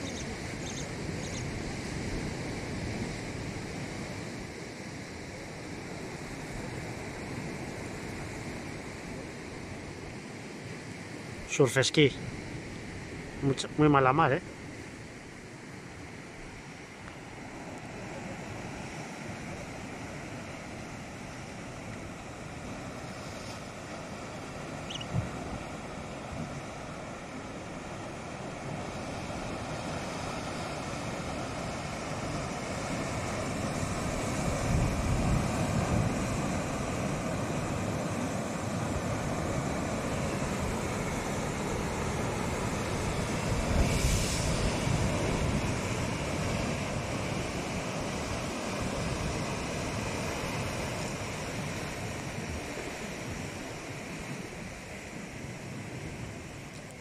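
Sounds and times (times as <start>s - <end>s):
waves breaking on breakwater: 0.0s - 57.0s
heavy wave crashes: 11.2s - 56.7s
wind buffeting microphone: 28.1s - 54.1s.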